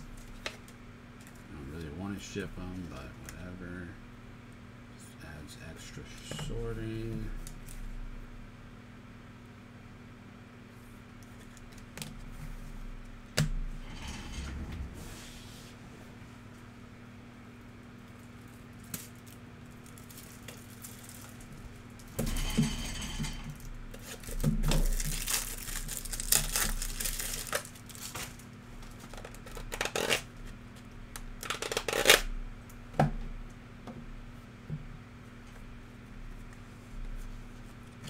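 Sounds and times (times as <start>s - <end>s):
card pack wrappers tearing and crinkling: 18.5s - 21.5s, 24.0s - 30.3s, 31.4s - 32.3s.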